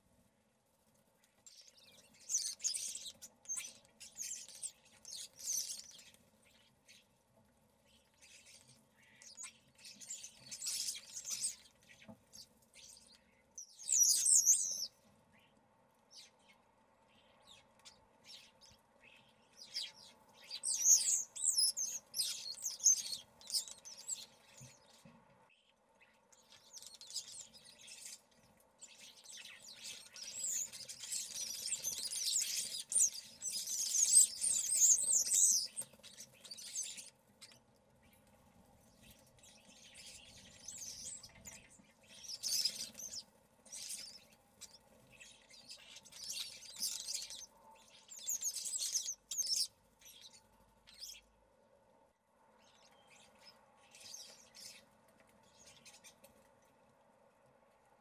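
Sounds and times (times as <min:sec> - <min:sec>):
starlings chattering: 0:01.5 - 0:07.0, 0:07.9 - 0:15.0, 0:17.2 - 0:25.0, 0:26.1 - 0:37.6, 0:38.9 - 0:51.2.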